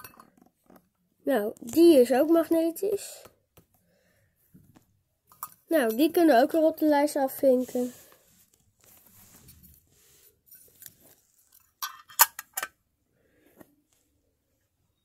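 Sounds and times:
faint rustling: 0:07.3 - 0:11.6
metal tin clicking: 0:11.8 - 0:12.8.

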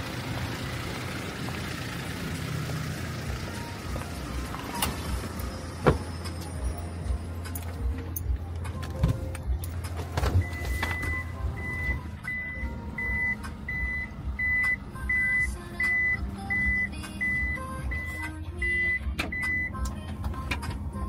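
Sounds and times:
engine idling hum: 0:00.0 - 0:21.0
high warning beeps: 0:10.4 - 0:19.8.

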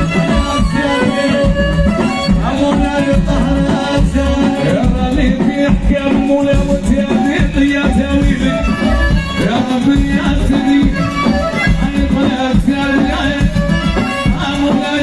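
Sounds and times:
bass: 0:00.0 - 0:15.0
percussion beat: 0:00.0 - 0:15.0
violin melody: 0:08.2 - 0:14.7.

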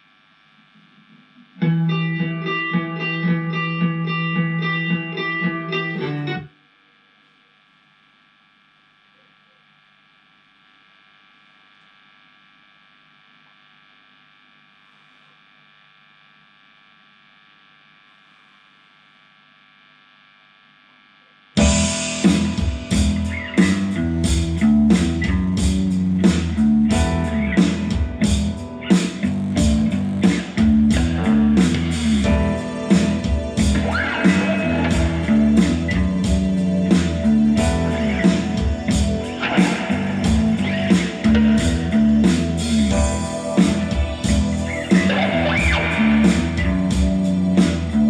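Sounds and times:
faint electrical hum: 0:00.0 - 0:48.0
loud guitar music with beat: 0:01.6 - 0:06.5, 0:21.6 - 0:48.0.

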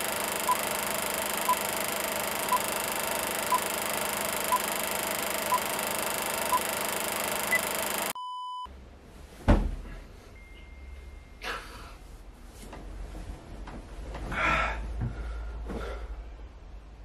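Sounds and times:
countdown beeps: 0:00.0 - 0:08.7
bedding rustling: 0:12.4 - 0:16.0.

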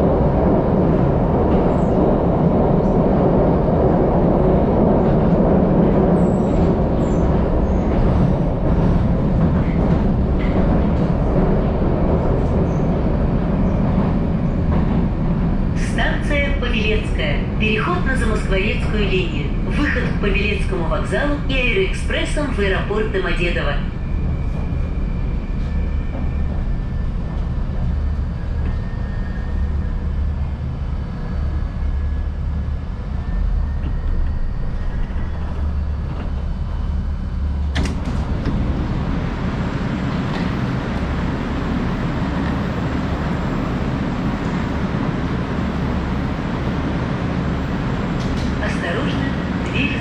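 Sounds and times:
train car hum with faint whine: 0:00.0 - 0:50.0.

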